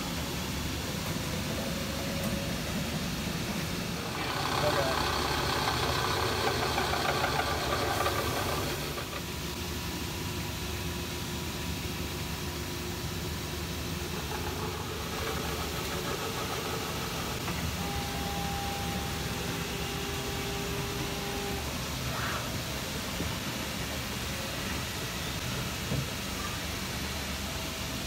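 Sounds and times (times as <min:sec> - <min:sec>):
milling machine cutting metal: 0:04.0 - 0:09.2.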